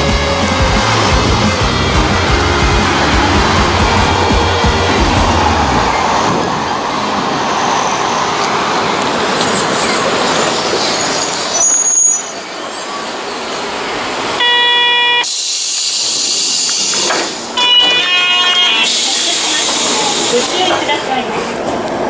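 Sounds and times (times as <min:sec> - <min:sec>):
train running: 0:00.0 - 0:22.0
train horn toot: 0:14.4 - 0:15.3, 0:17.6 - 0:19.6
sharp hiss of air: 0:15.3 - 0:17.6.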